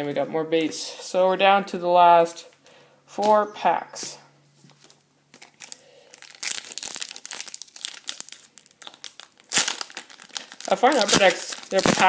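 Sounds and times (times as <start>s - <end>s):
foil wrapper crinkling and tearing: 4.8s - 12.0s.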